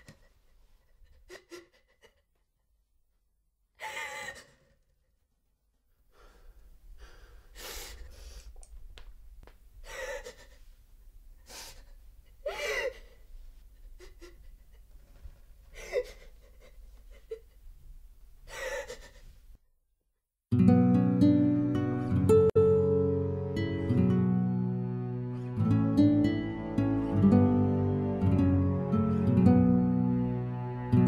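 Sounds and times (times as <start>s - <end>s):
boy gasping and breathing: 6.1s - 8.6s, 11.4s - 13.3s
acoustic guitar music: 20.5s - 31.0s.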